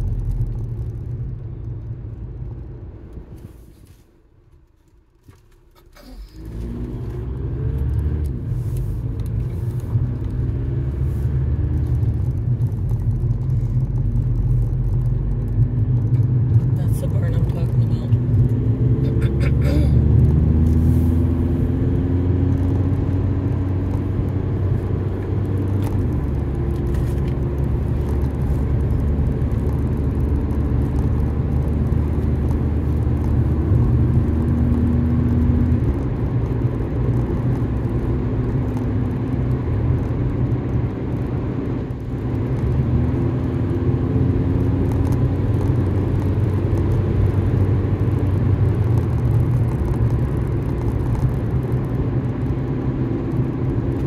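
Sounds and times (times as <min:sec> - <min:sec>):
car engine: 0:00.0 - 0:54.0
tyre rumble on paved road: 0:20.0 - 0:54.0.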